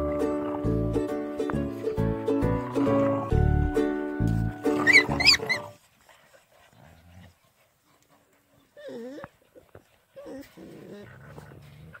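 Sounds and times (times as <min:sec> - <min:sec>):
puppies growling: 0:04.7 - 0:05.8, 0:08.6 - 0:12.0
puppy whines: 0:04.8 - 0:05.8, 0:08.8 - 0:11.2.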